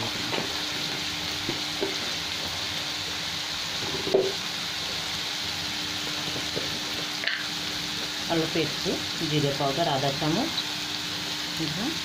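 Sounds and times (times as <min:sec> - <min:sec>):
potatoes sizzling in hot oil: 0:00.0 - 0:12.0.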